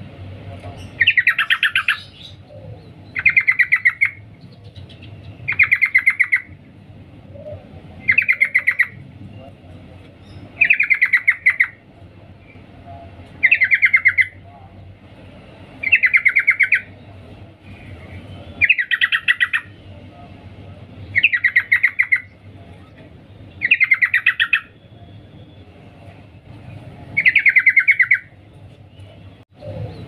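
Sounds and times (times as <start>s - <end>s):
bird chattering call: 0.8s - 2.5s, 3.1s - 6.6s, 7.4s - 9.0s, 10.3s - 11.8s, 13.4s - 14.4s, 15.8s - 17.0s, 18.6s - 19.8s, 21.1s - 22.4s, 23.6s - 24.8s, 27.2s - 28.3s.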